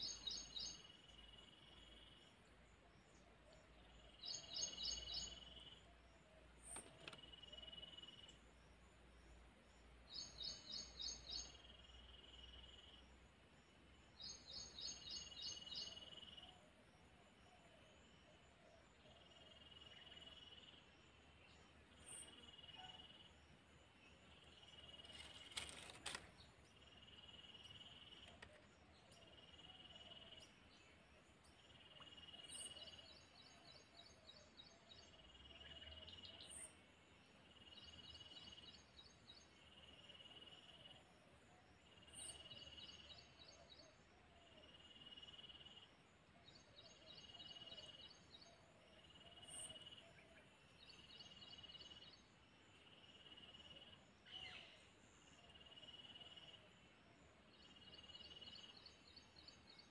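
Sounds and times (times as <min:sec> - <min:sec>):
faint click: 0:06.6 - 0:07.6, 0:25.0 - 0:26.4, 0:28.0 - 0:28.7
insects chirping: 0:06.8 - 0:59.9.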